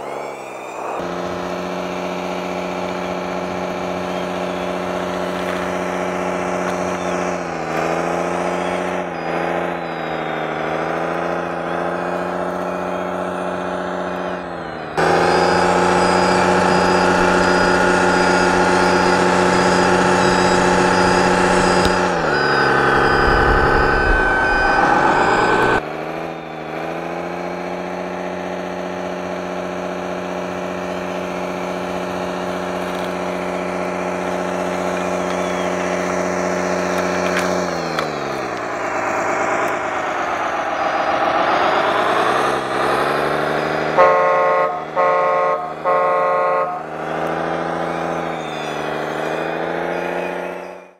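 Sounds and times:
toy bulldozer engine drone: 0:00.0 - 0:50.9
short horn blasts: 0:43.8 - 0:47.1.

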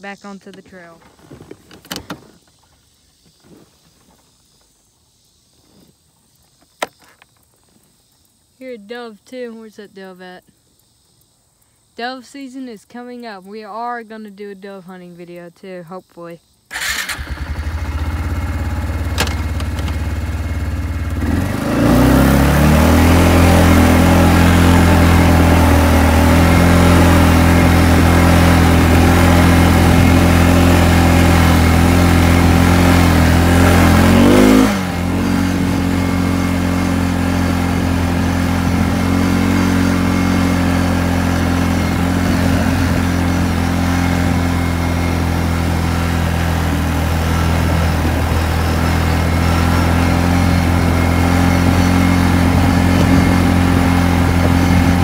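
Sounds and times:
atv engine running: 0:16.7 - 0:55.0.

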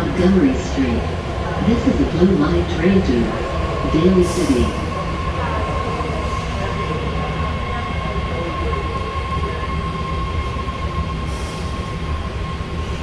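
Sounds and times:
subway car low rumble: 0:00.0 - 0:13.0.

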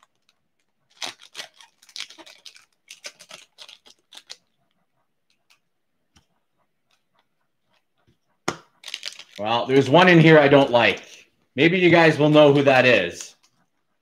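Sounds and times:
wrapper crinkling and tearing: 0:00.0 - 0:04.5, 0:08.7 - 0:09.8.

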